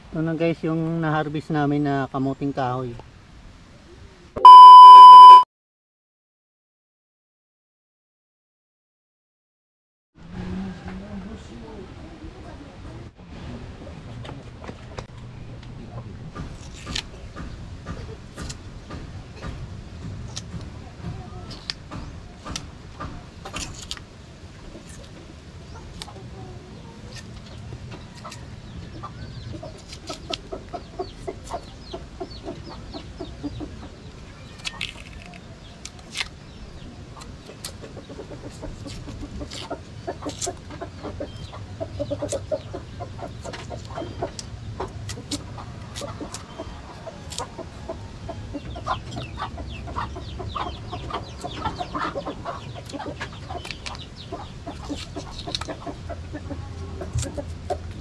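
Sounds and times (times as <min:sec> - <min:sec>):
knife cutting and peeling roots: 0:16.4 - 0:17.1, 0:20.2 - 0:20.7, 0:21.5 - 0:26.3, 0:26.9 - 0:28.4, 0:29.6 - 0:32.0, 0:33.5 - 0:36.5, 0:37.2 - 0:47.7, 0:50.9 - 0:58.0
chickens clucking: 0:20.3 - 0:58.0.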